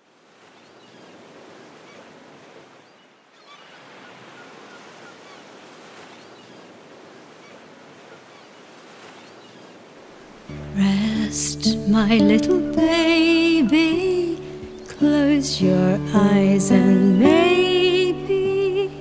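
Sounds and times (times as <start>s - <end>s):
waves breaking: 0.0s - 19.0s
faint bird calls: 2.7s - 9.8s.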